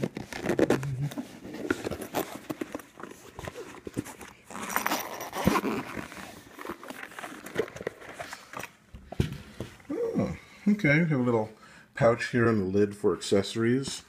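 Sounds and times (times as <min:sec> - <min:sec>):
zipper rasping: 0:00.0 - 0:02.4, 0:04.5 - 0:06.8.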